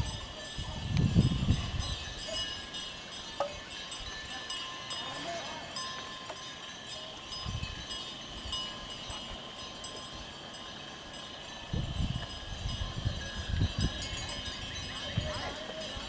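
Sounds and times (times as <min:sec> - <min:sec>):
outdoor background noise: 0:00.0 - 0:16.0
faint voices: 0:03.4 - 0:07.3, 0:13.8 - 0:16.0.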